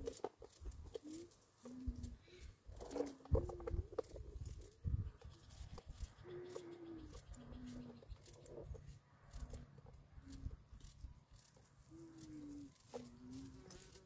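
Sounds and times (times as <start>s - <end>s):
dove cooing: 0.0s - 4.4s, 5.1s - 8.8s, 11.9s - 14.0s.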